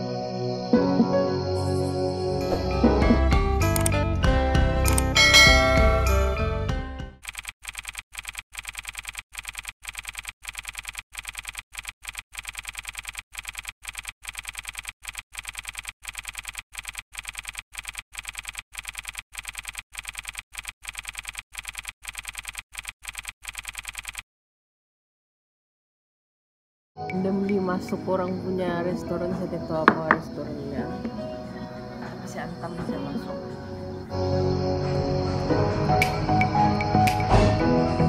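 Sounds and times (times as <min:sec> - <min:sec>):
music: 0:00.0 - 0:07.2, 0:27.0 - 0:38.0
keyboard clicks: 0:07.2 - 0:24.2.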